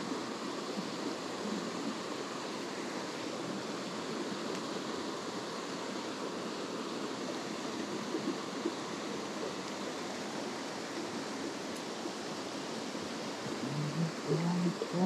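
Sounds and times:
mountain stream flowing: 0.0 - 15.0.

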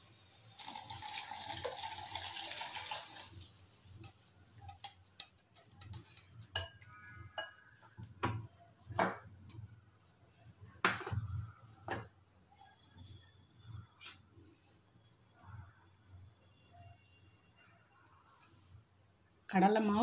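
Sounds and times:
liquid pouring: 0.2 - 5.0.

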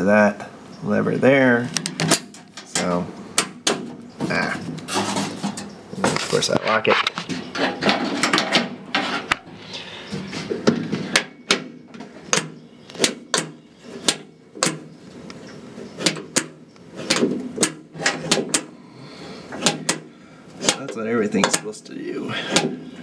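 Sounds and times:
rubbing and handling noise: 3.7 - 18.6
door latch metallic clicks: 12.3 - 14.9, 19.6 - 21.7.

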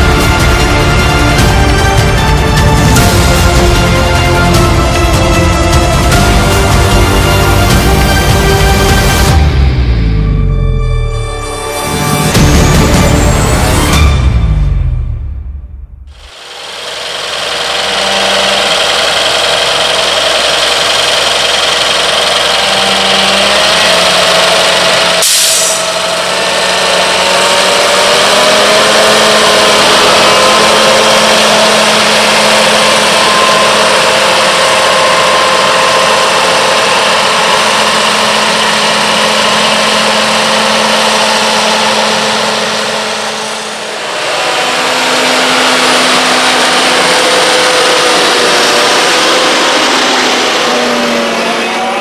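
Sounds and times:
diesel engine running: 0.0 - 52.0.

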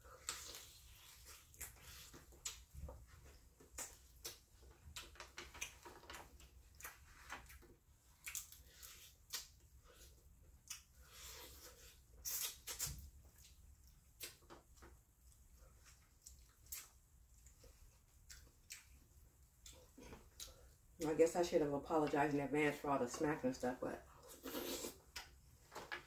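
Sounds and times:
wet mouth smacks eating: 12.2 - 14.5.

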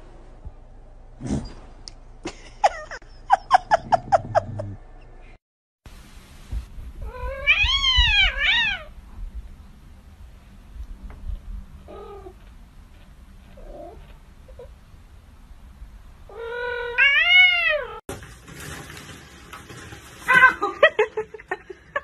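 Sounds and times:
cat meowing: 7.0 - 8.9, 16.3 - 18.0.

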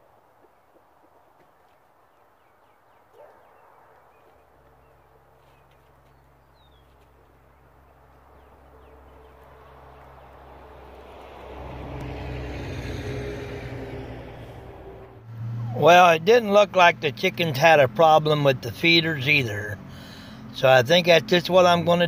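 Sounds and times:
engine running: 4.5 - 22.0.

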